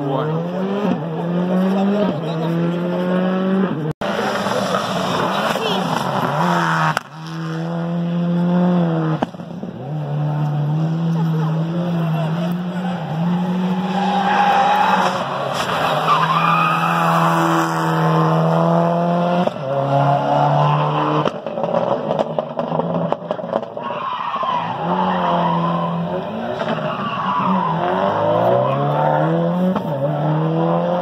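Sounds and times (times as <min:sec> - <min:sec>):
rally car engine at full throttle: 0:00.0 - 0:31.0.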